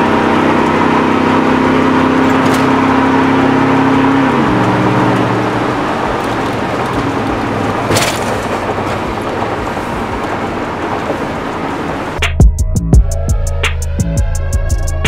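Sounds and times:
engine and road noise in cabin: 0.0 - 15.0
music with drum beat: 12.2 - 15.0.

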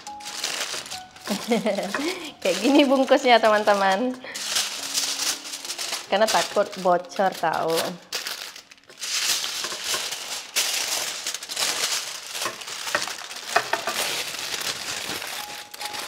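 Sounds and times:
wrapping crinkling and rustling: 0.0 - 16.0.

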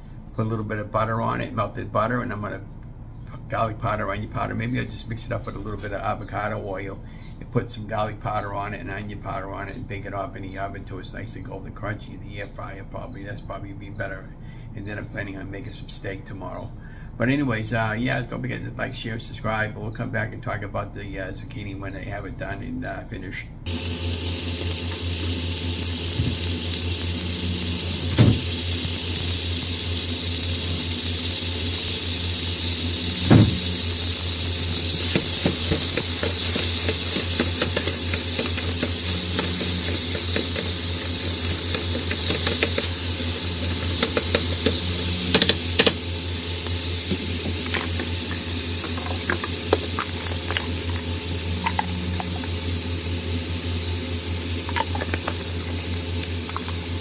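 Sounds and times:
meat sizzling in hot oil: 23.7 - 57.0.

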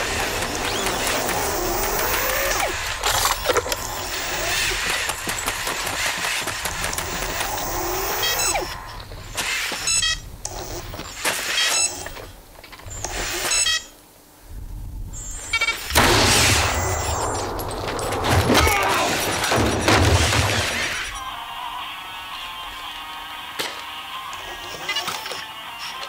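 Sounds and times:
mechanical clicks and rattles: 0.0 - 9.5
servo motors whirring: 0.0 - 13.9
electronic chirping tones: 7.0 - 11.0.

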